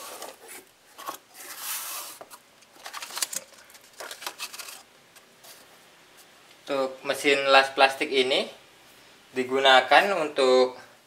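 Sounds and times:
cardboard and paper rustling: 0.0 - 5.7.

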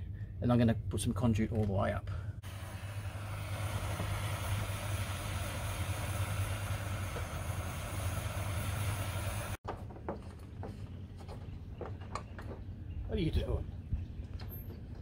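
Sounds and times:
jet torch hissing: 2.4 - 9.6.

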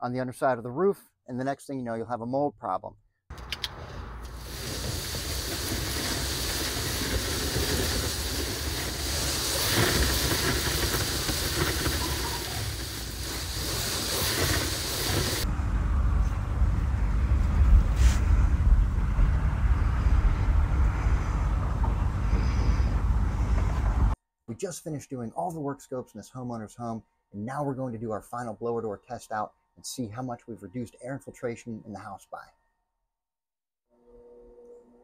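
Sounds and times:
low rumbling noise: 3.4 - 24.2
blower hose hissing air: 3.7 - 15.5, 21.0 - 24.2.

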